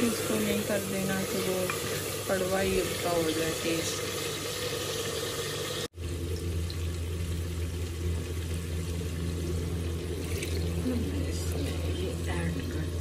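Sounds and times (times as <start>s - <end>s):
food sizzling in a pot: 0.0s - 13.0s
steady low hum: 6.0s - 13.0s.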